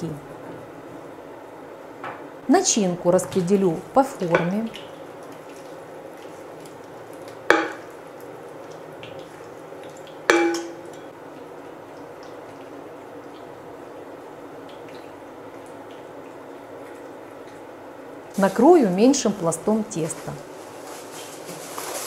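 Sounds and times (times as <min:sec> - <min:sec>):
spoon knocking against dish: 0:10.3 - 0:10.8.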